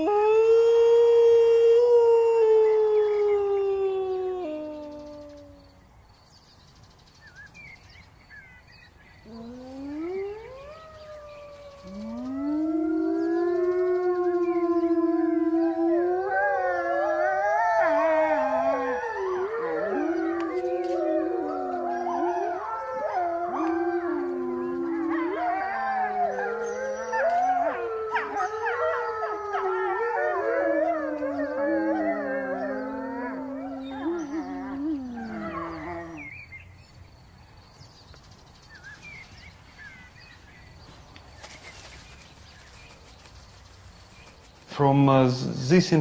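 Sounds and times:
wolves howling in chorus: 0.0s - 5.6s, 9.2s - 36.4s.

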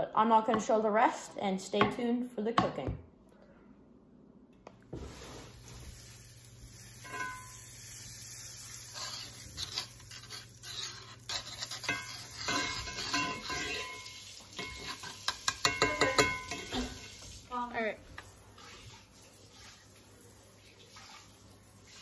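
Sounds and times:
butter sizzling in a skillet: 5.0s - 19.9s
knife scraping and tapping pan: 7.0s - 7.6s, 8.9s - 17.1s.

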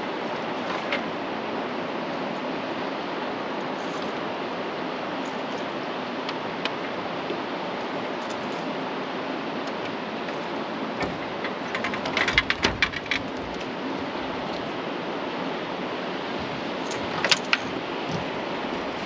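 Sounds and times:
sharp clicks and rattles: 9.6s - 14.7s, 16.8s - 19.0s.

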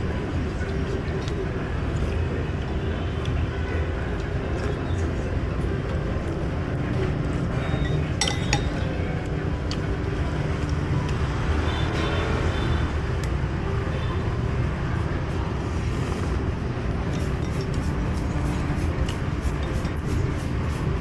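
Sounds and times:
street traffic rumble: 0.0s - 21.0s
utensils clinking on ceramic bowl: 7.8s - 8.9s.

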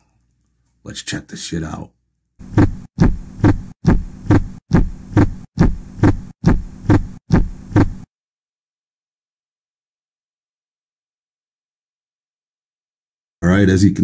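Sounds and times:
low hum: 2.4s - 8.0s
heartbeat double thump: 2.4s - 8.1s.

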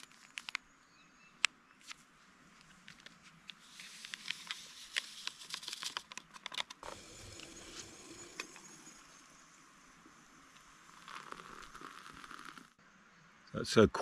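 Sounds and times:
paper sachet crinkling: 3.6s - 6.6s, 11.0s - 12.7s
powder shaken into cup: 10.9s - 12.7s.

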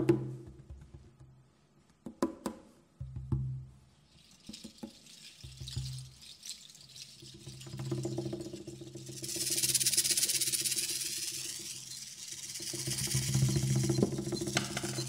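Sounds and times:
soft hissing rustle: 3.6s - 15.0s.

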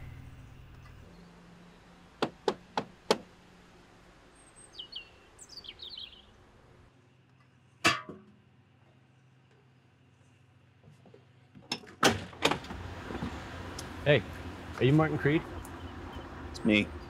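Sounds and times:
bird chirping descending notes: 4.3s - 6.4s.

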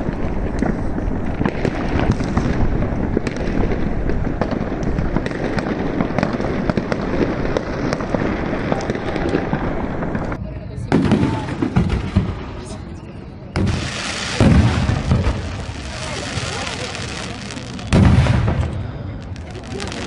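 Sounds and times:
fireworks crackling and banging: 0.0s - 20.0s.

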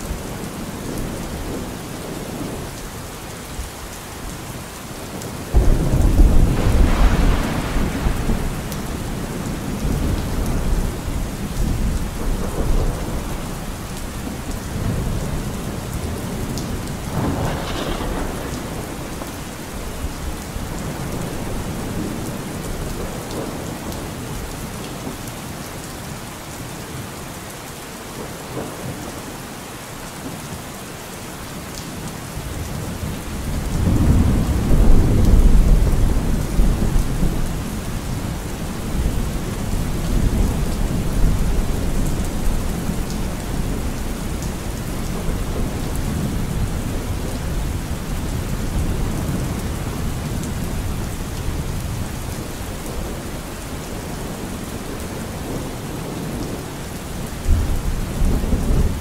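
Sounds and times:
steady rain: 0.0s - 59.0s
thunder rumbling: 5.1s - 24.5s, 32.4s - 59.0s.

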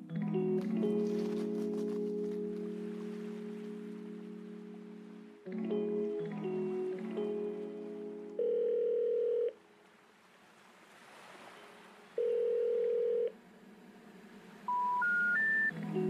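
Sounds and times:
telephone ringing tone: 8.4s - 9.6s, 12.2s - 13.3s
short rising beeps: 14.7s - 15.7s.

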